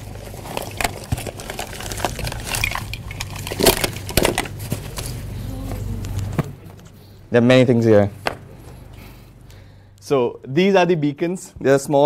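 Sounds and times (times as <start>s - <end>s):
hand rummaging through small objects: 0.0s - 5.3s.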